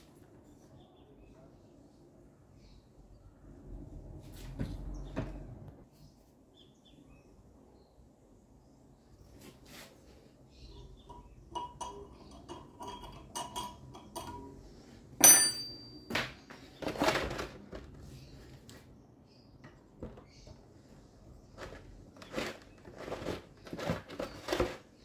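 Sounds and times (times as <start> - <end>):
metal clinking and tapping: 11.0 - 14.6, 15.2 - 16.2
sharp ringing metal strike: 15.2 - 16.1.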